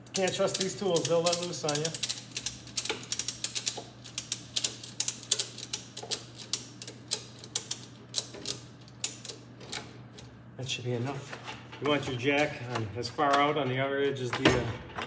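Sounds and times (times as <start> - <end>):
socket ratchet clicking: 0.1 - 9.8.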